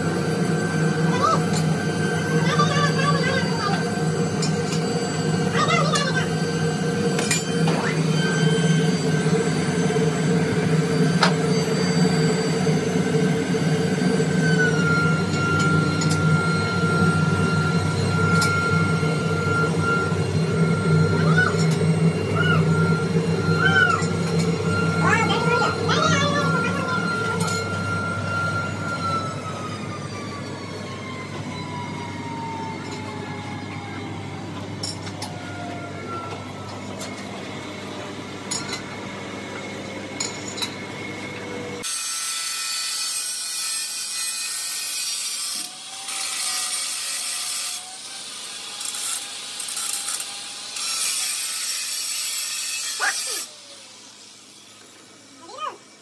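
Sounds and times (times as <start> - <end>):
angle grinder grinding metal: 0.0 - 29.8, 41.8 - 55.9
machine whine falling in pitch: 0.0 - 41.9.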